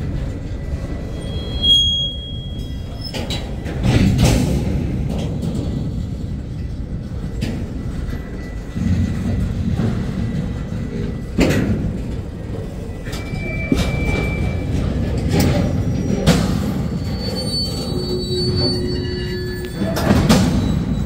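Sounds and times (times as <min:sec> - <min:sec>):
freight train rumbling past: 0:00.0 - 0:21.0
thin wheel squeals: 0:01.0 - 0:03.4, 0:13.0 - 0:21.0
metallic bangs and clanks: 0:03.0 - 0:18.6, 0:19.8 - 0:21.0.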